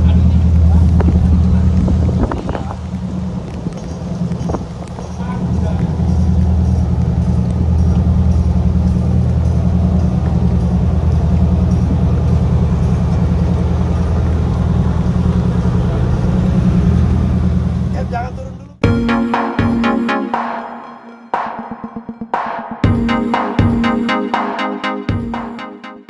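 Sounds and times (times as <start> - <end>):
diesel engine idling: 0.0 - 19.1.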